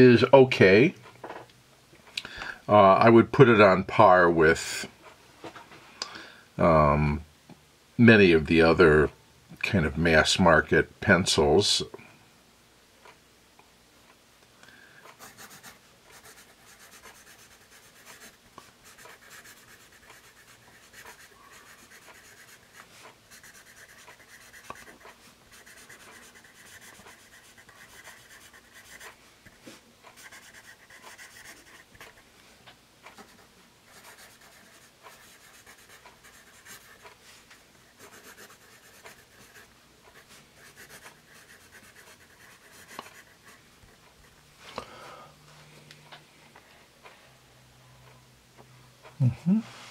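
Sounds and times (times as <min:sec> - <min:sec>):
pencil scratching on paper: 0:15.2 - 0:29.2, 0:30.1 - 0:32.2, 0:33.2 - 0:37.1, 0:37.9 - 0:44.4.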